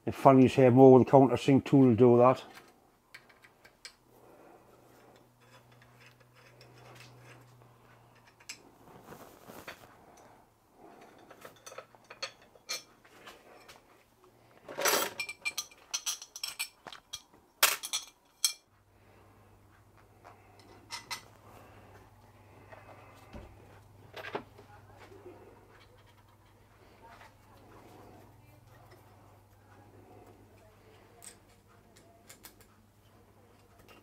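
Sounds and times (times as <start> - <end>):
small metal parts clinking: 11.0 - 12.9, 14.7 - 18.7.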